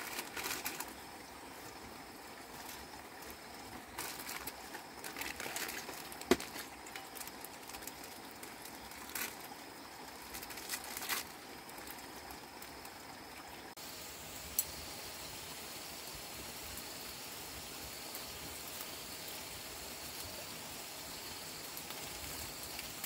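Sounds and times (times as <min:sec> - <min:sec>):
plastic sachets crinkling and tearing: 0:00.0 - 0:01.0, 0:02.5 - 0:12.8
faint steady hiss: 0:00.0 - 0:23.0
sharp crack: 0:05.1 - 0:06.7.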